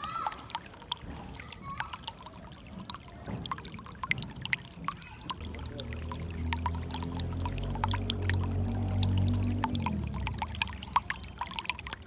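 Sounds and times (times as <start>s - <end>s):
stream water trickling and splashing: 0.0s - 12.0s
low steady hum: 3.5s - 12.0s.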